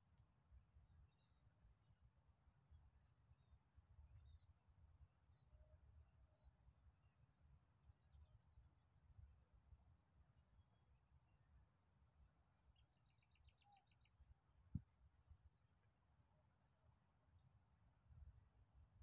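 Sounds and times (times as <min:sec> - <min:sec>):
faint high-pitched tone: 0:00.1 - 0:06.7.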